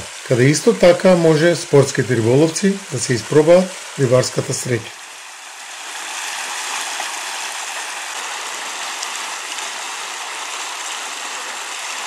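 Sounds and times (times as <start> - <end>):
river water rushing over rocks: 4.9 - 12.0.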